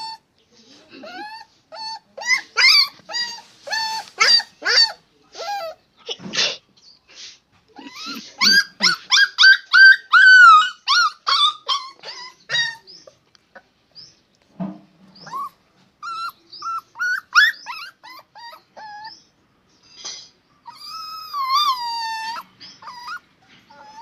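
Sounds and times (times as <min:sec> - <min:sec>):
dog yelping and whining: 0:00.0 - 0:00.2, 0:01.0 - 0:05.8, 0:07.8 - 0:13.2, 0:15.1 - 0:19.3, 0:20.6 - 0:24.0.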